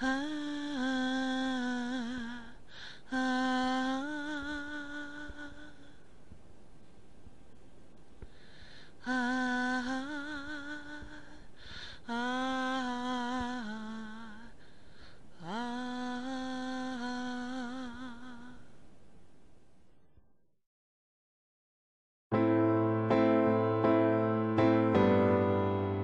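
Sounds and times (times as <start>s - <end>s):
woman singing wordless notes: 0.0s - 6.0s, 9.0s - 14.6s, 15.4s - 18.7s.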